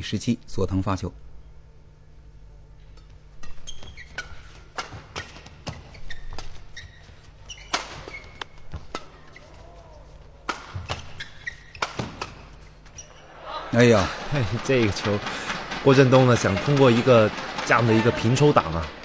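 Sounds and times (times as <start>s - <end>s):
shoes squeaking on court floor: 3.3s - 13.4s
rackets hitting shuttlecock: 10.4s - 12.5s.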